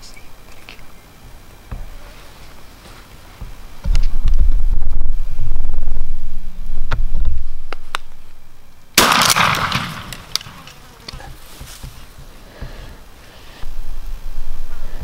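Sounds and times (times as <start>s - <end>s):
low rumble: 3.8s - 9.0s
shotgun shot: 9.0s - 10.7s.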